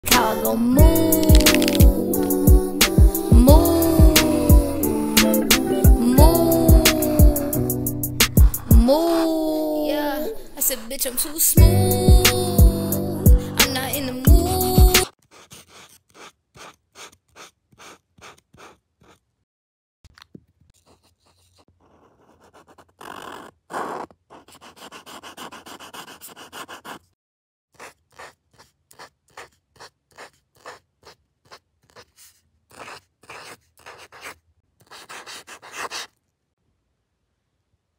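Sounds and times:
marker scratching on paper: 0:00.1 - 0:08.7, 0:13.6 - 0:19.3, 0:20.8 - 0:27.2, 0:27.8 - 0:36.2.

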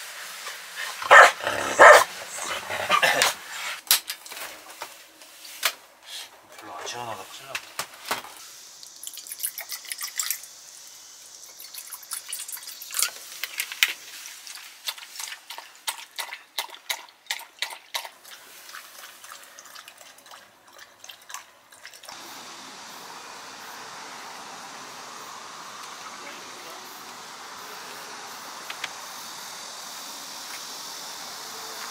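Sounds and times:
outdoor background noise: 0:00.0 - 0:31.9
dog lapping water from bowl: 0:15.2 - 0:22.1.

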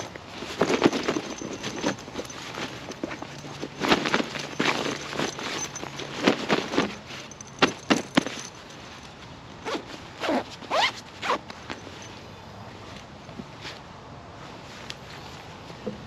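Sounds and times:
zipper being pulled: 0:00.0 - 0:08.6, 0:09.6 - 0:12.1
fabric rustling: 0:00.0 - 0:10.0.

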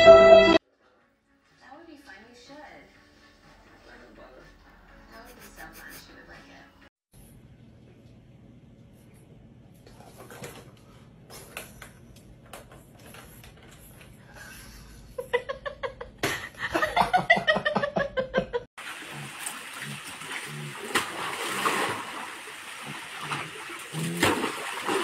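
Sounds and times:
small waterfall splashing into pool: 0:18.8 - 0:25.0.

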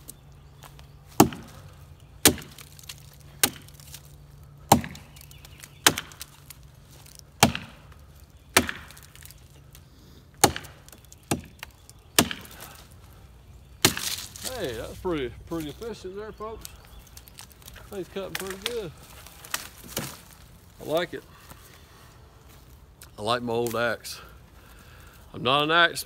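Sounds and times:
axe chopping wood: 0:01.1 - 0:01.6, 0:02.2 - 0:06.5, 0:07.4 - 0:09.4, 0:10.4 - 0:12.7, 0:13.8 - 0:14.5, 0:19.5 - 0:20.2.

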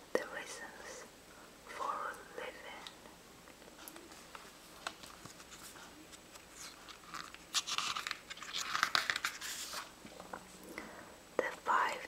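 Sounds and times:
book pages turning: 0:03.8 - 0:10.4.

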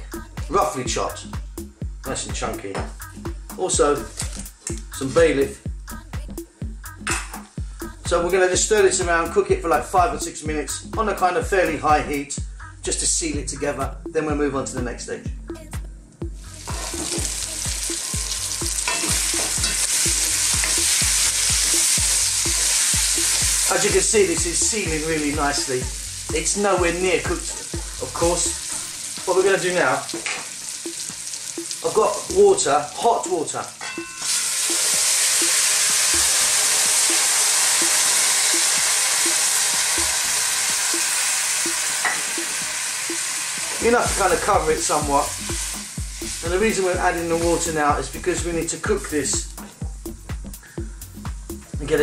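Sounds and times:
meat sizzling in hot oil: 0:16.4 - 0:49.6.

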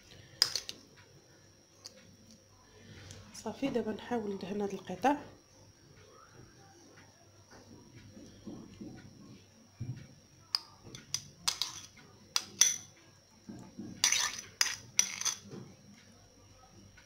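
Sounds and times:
metal spoon clinking on metal: 0:10.5 - 0:12.9, 0:14.0 - 0:15.5.

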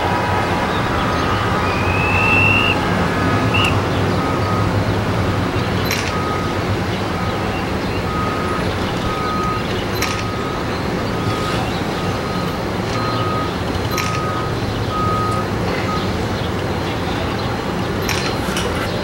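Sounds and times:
harbour and traffic rumble: 0:00.0 - 0:19.0
reversing alarm beeping: 0:01.0 - 0:16.1.

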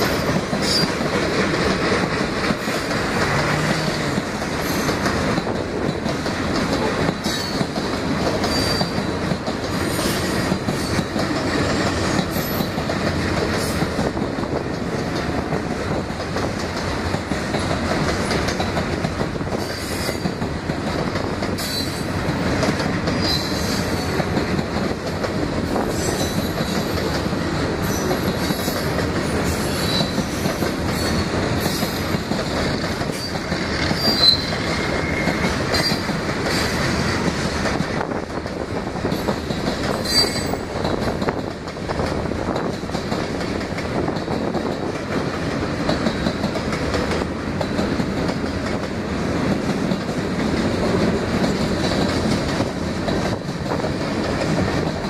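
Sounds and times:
train wheels rumbling on rails: 0:00.0 - 0:55.0
high-pitched wheel squeals: 0:08.5 - 0:09.0, 0:34.0 - 0:36.0, 0:40.0 - 0:40.7.

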